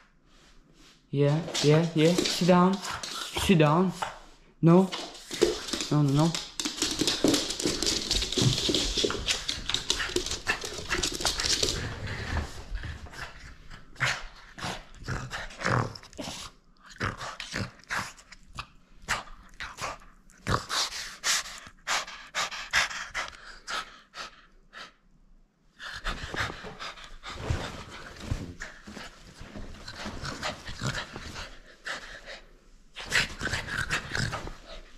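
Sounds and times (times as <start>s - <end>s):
dog panting: 20.7s - 25.0s.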